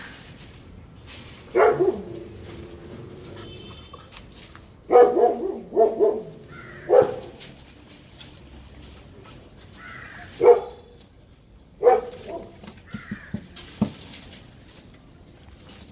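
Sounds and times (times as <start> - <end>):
puppies yapping: 4.9 - 7.5.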